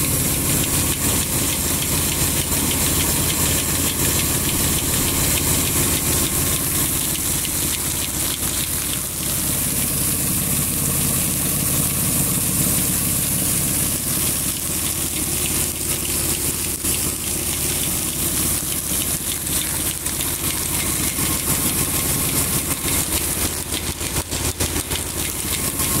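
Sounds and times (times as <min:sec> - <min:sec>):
stone grain mill grinding: 0:00.1 - 0:10.2, 0:14.2 - 0:26.0.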